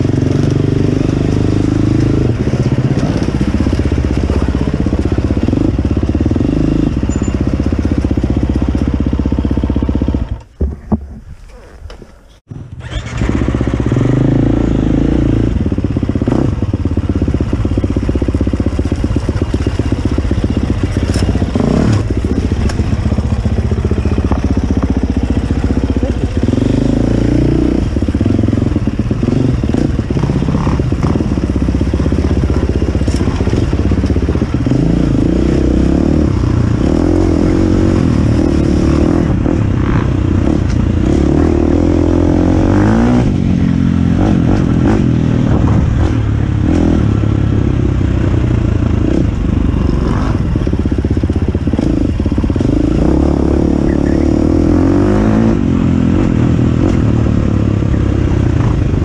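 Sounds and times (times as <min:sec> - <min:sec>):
dirt bike engine revving: 0:00.0 - 0:10.5, 0:12.5 - 0:59.0
bike knocking over rocks: 0:10.4 - 0:12.2.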